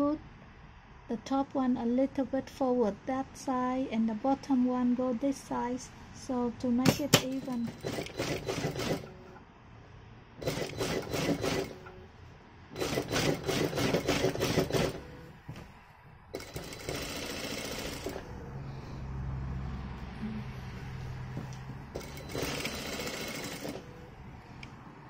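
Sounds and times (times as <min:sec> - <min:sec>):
sewing machine stitching: 0:06.8 - 0:09.4, 0:10.4 - 0:12.0, 0:12.8 - 0:15.2, 0:16.3 - 0:18.3, 0:21.9 - 0:24.0
low motor hum: 0:17.6 - 0:22.8.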